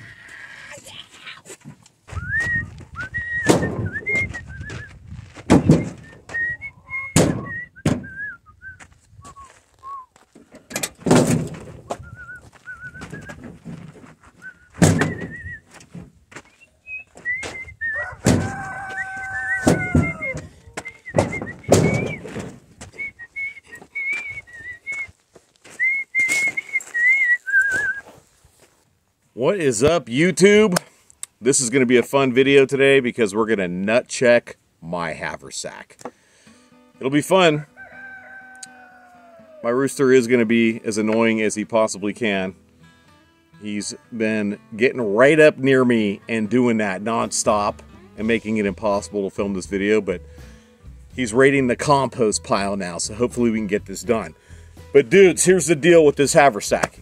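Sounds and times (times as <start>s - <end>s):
person whistling a tune: 2.1s - 4.9s, 5.7s - 10.2s, 12.0s - 13.4s, 14.4s - 15.7s, 16.5s - 18.2s, 19.0s - 22.3s, 22.9s - 28.1s
truck door shutting: 3.4s - 4.4s, 5.5s - 6.4s, 7.1s - 8.2s, 10.6s - 12.1s, 14.8s - 16.1s, 18.2s - 18.5s, 19.6s - 22.6s
rooster crowing: 17.9s - 20.8s, 37.7s - 39.7s.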